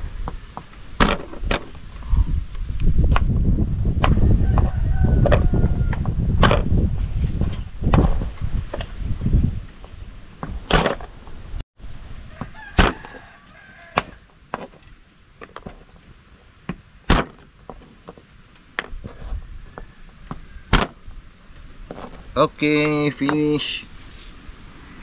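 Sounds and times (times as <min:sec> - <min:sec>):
faint chicken calls: 0:04.1 - 0:06.2, 0:12.2 - 0:14.3, 0:19.0 - 0:20.8.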